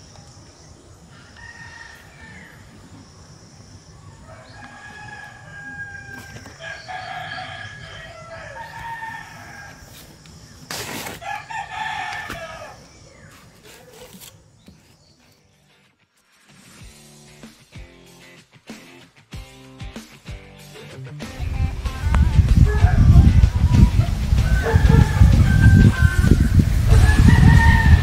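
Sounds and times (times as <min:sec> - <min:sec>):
rooster crowing: 0:01.1 - 0:02.9, 0:04.0 - 0:10.0, 0:11.2 - 0:12.9, 0:22.4 - 0:28.0.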